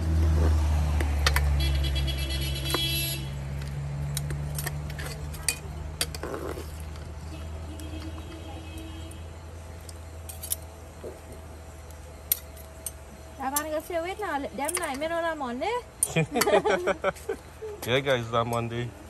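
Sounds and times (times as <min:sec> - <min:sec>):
vehicle engine drone: 0:00.0 - 0:14.6.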